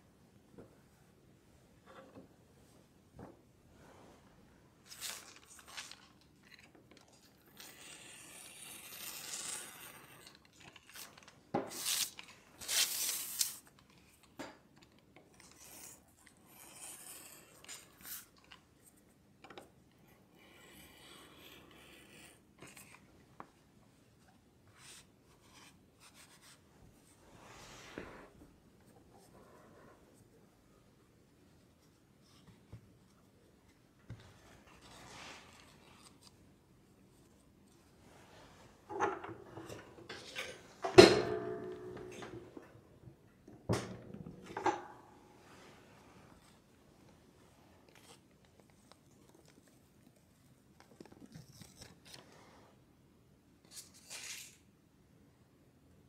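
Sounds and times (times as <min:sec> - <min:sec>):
craft knife cutting paper: 0:04.9 - 0:13.7, 0:15.4 - 0:18.6
paper and fabric being handled: 0:31.2 - 0:38.8.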